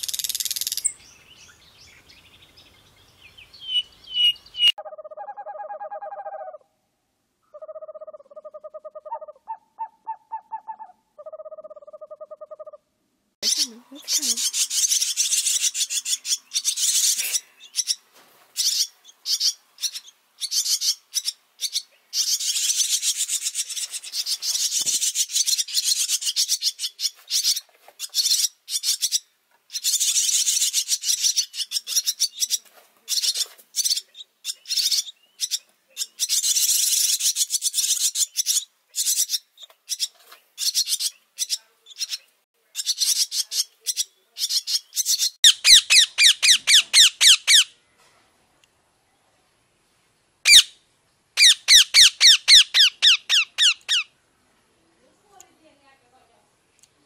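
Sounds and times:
swallow fledglings begging: 13.4 - 18.0, 18.6 - 32.6, 42.8 - 47.7, 50.5 - 50.7, 51.4 - 54.1.

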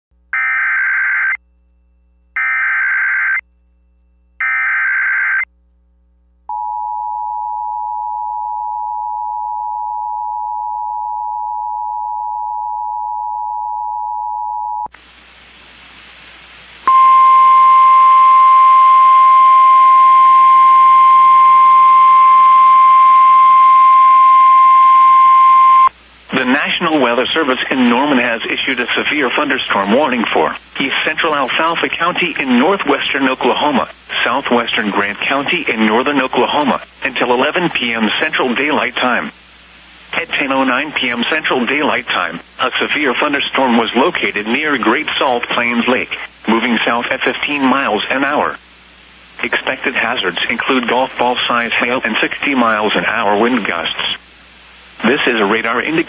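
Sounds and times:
radio hiss: 14.9 - 17.0, 25.9 - 56.0
steady warning alarm tone: 16.9 - 25.9.

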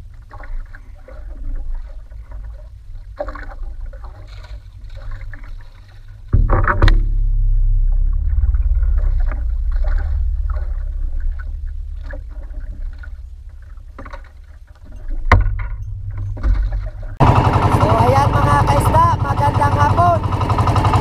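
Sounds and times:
wind and water rumble: 0.0 - 21.0
light knocks in boat: 6.3 - 7.2.

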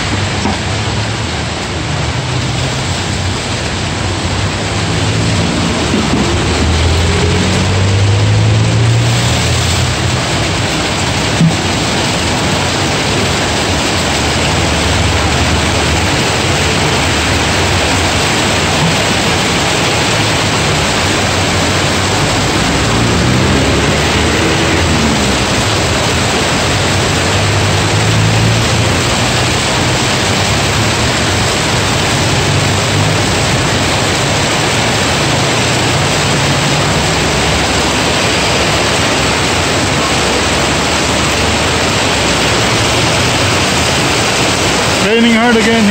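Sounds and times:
car engines humming: 0.0 - 45.9
heavy rain on pavement and cars: 0.0 - 45.9
vehicle driving past: 3.8 - 45.8.

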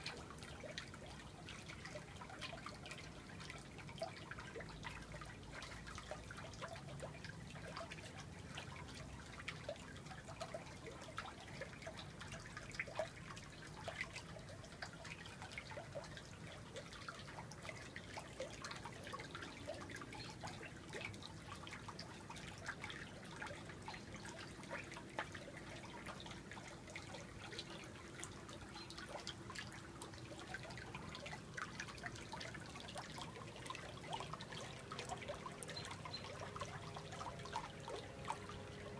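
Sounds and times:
water dripping into pool: 0.0 - 38.9.

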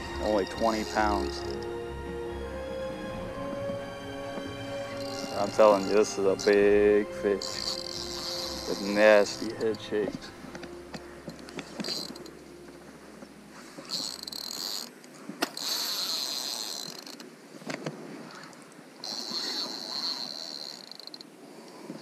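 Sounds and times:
fishing reel drag buzzing: 0.0 - 1.7, 4.7 - 12.4, 13.5 - 17.3, 19.0 - 21.3.

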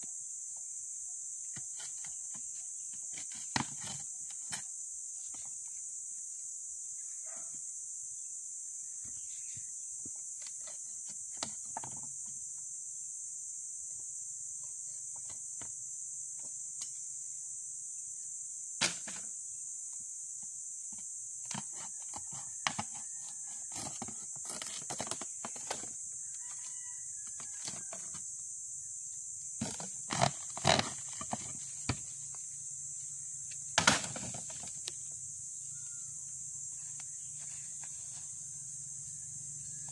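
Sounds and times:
wooden boards knocking and clattering: 33.8 - 34.8.

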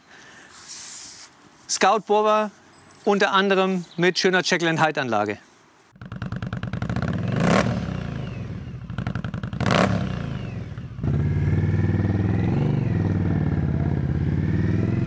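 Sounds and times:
motorcycle engine idling and revving: 6.0 - 15.0
motorcycle riding by: 6.0 - 15.0.

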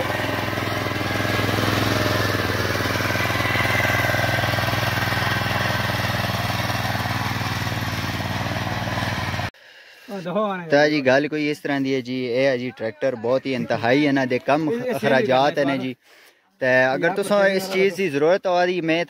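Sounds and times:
tiller petrol engine running: 0.0 - 9.5.

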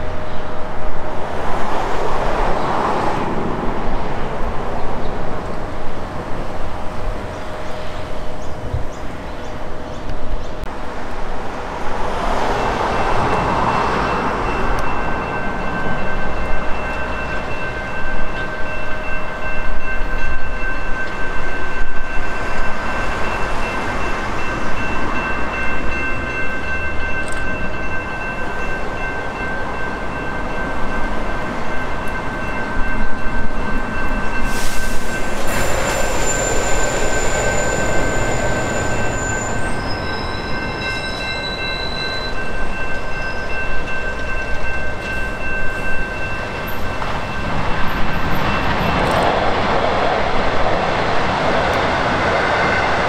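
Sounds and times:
electric train passing: 0.0 - 53.0
level crossing warning bells: 12.3 - 49.3.

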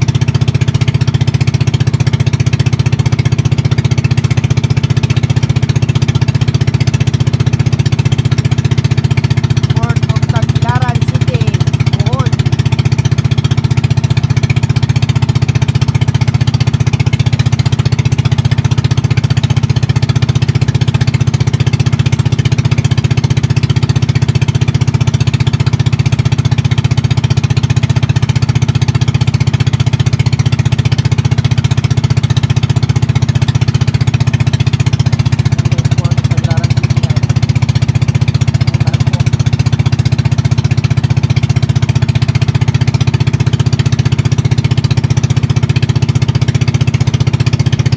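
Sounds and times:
boat engine running: 0.0 - 47.9.

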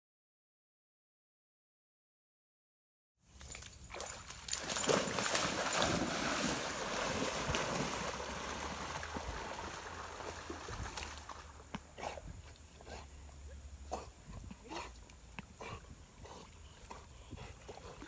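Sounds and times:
dog splashing in water: 3.9 - 11.7
rushing creek current: 3.9 - 12.2.

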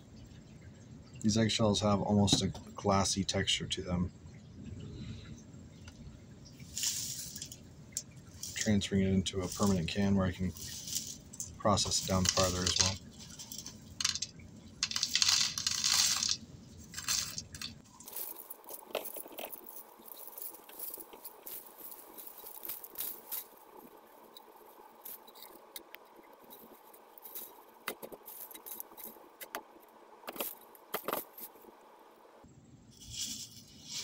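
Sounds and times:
light clicks of dropping flakes: 5.8 - 31.7, 32.9 - 34.0
eggshell flakes rattling into jar: 6.6 - 31.6.

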